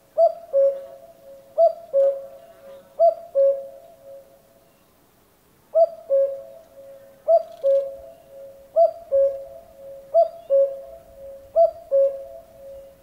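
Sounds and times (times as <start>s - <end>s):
cuckoo calling: 0.2s - 4.3s, 5.7s - 13.0s.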